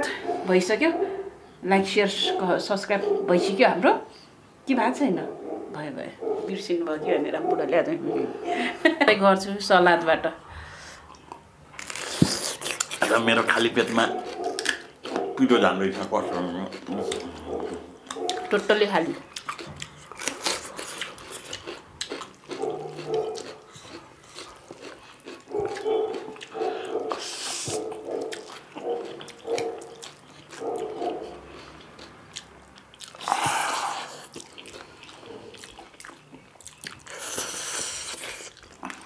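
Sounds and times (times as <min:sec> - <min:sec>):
crunching salad: 0:11.1 - 0:39.0
noodles slurped: 0:19.5 - 0:30.3, 0:33.0 - 0:36.2, 0:36.8 - 0:39.0.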